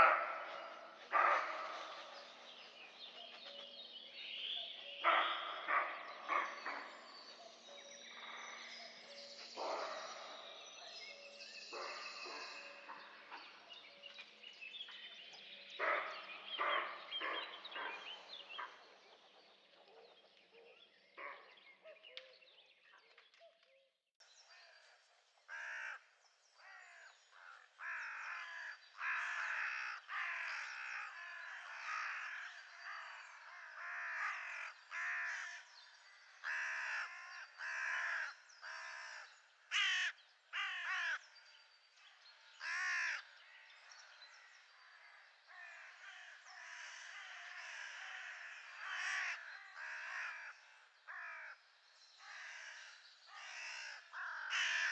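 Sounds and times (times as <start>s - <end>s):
flock of birds calling: 0.0s - 13.7s, 26.6s - 41.2s, 42.6s - 44.1s, 44.7s - 51.6s, 52.2s - 54.9s.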